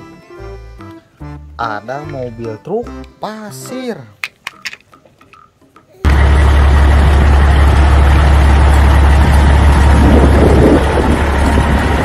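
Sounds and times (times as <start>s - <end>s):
truck engine idling: 6.0s - 12.0s.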